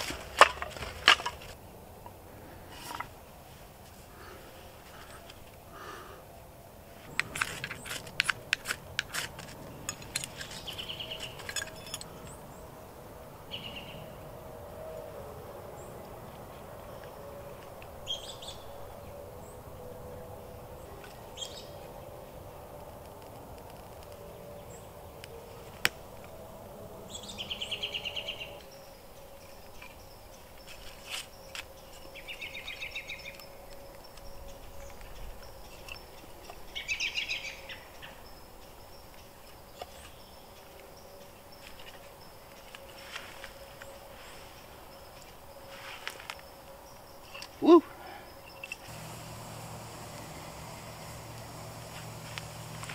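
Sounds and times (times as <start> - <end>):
songbirds calling: 0.0 - 52.9
ferrocerium rod scraping striker: 7.1 - 12.1.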